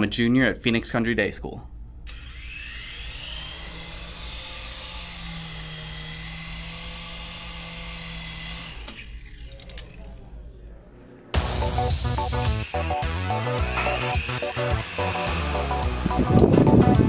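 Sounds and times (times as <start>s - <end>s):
toy helicopter rotor whine: 2.1s - 10.0s, 12.3s - 16.8s.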